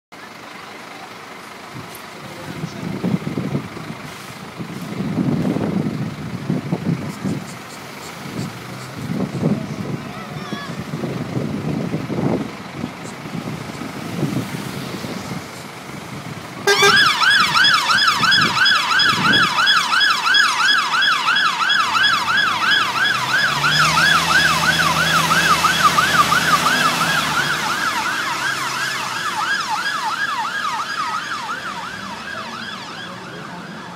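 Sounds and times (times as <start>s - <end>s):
truck engine: 0.1s - 33.9s
fire engine siren yelping: 9.7s - 33.9s.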